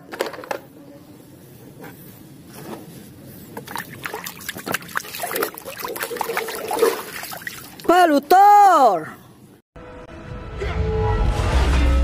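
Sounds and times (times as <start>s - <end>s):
water sloshing in plastic basin: 3.6s - 8.0s.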